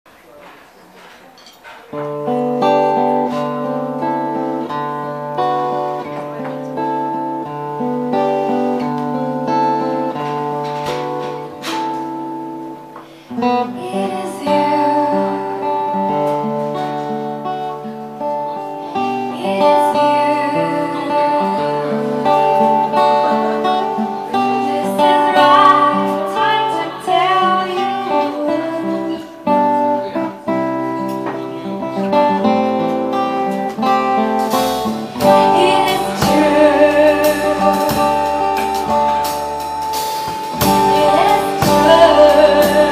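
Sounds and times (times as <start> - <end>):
acoustic guitar slow song: 0.3 - 42.9
person singing: 13.2 - 16.4, 19.0 - 29.6, 34.5 - 39.6, 40.3 - 42.9.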